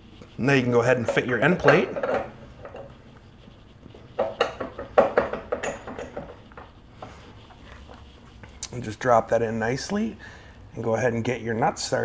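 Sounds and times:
metal clinks and knocks: 1.0 - 2.9, 4.2 - 6.6.

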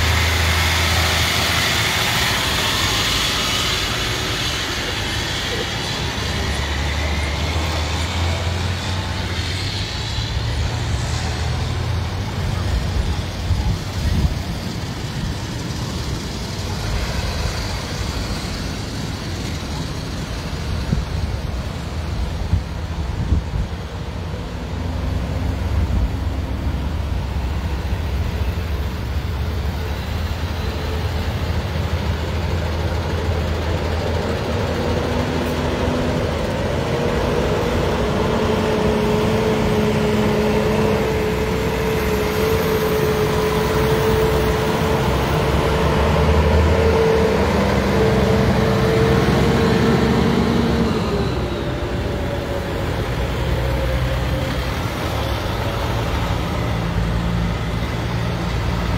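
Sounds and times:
diesel trucks rumbling past: 0.0 - 58.9.

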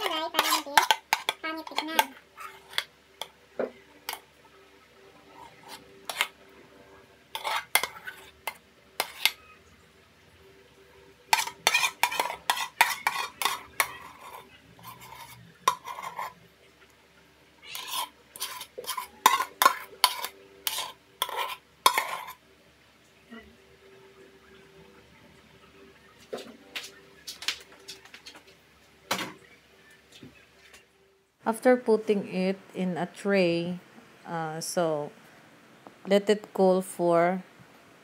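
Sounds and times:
spoon scraping cooking pot: 0.0 - 4.3, 5.2 - 6.5, 7.3 - 9.5, 11.3 - 16.4, 17.7 - 22.4.

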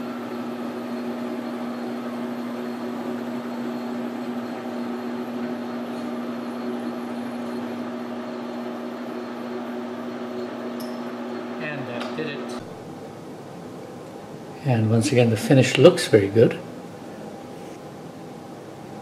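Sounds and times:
metal lathe humming: 0.0 - 19.0.

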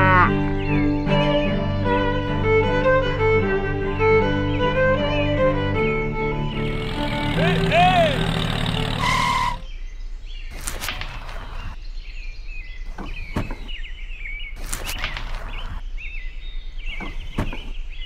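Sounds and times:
small birds chirping: 5.8 - 18.0
loud held tone: 6.5 - 9.7.

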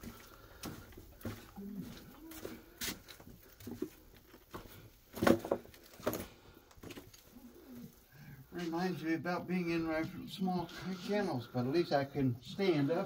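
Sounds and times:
footsteps crunching on broken bricks: 0.0 - 7.4.

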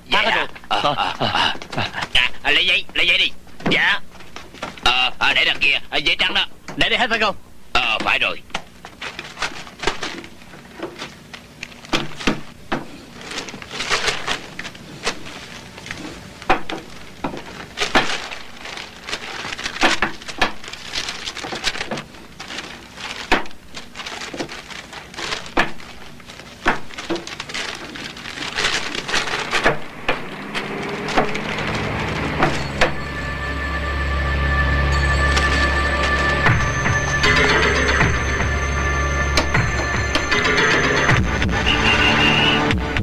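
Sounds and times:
paper rustling and crinkling: 4.1 - 4.9, 8.6 - 33.0.

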